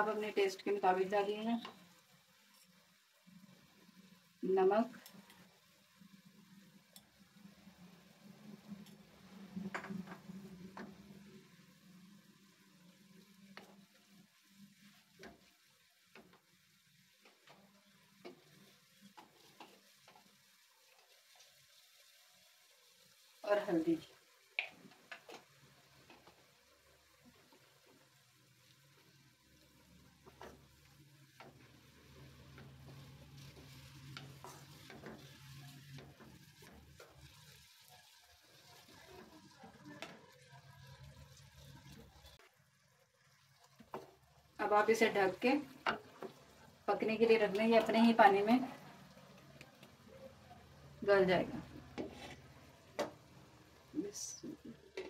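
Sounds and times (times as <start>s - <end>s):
meat sizzling: 0.0s - 55.0s
wooden spatula scraping pan: 31.4s - 37.7s, 51.4s - 53.1s.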